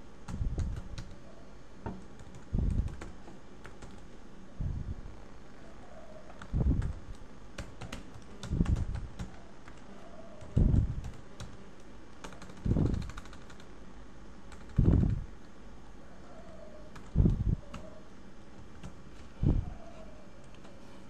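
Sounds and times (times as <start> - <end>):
keyboard typing: 0.2 - 1.2, 1.9 - 4.1, 6.3 - 13.7, 14.5 - 15.5, 16.4 - 18.0.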